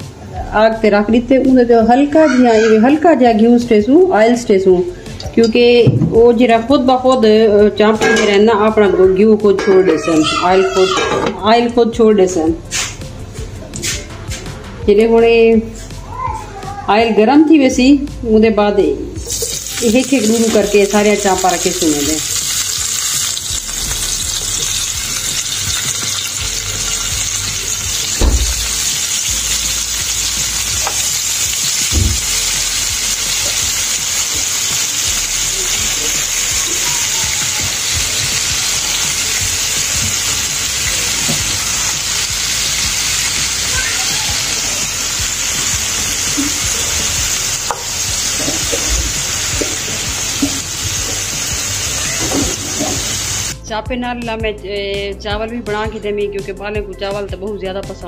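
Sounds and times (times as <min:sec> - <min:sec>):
meat sizzling in hot oil: 0:19.2 - 0:53.6
dull knocks in pan: 0:28.2 - 0:28.8.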